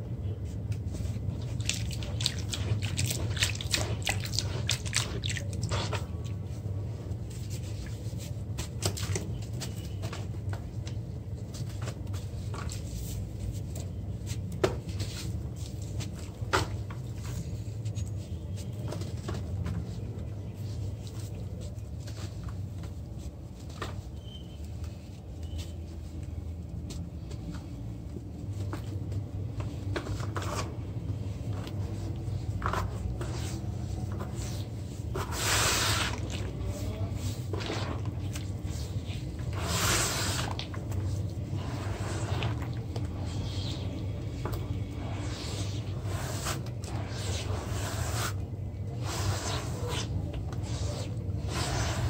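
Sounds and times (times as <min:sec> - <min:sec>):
hands squishing wet dirt: 0:01.4 - 0:06.4.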